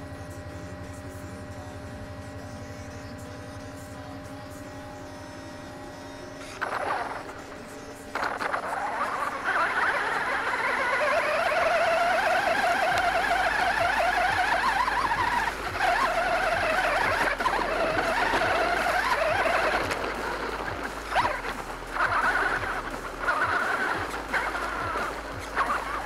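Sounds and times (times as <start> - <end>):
toy truck motor whining: 0.0 - 26.0.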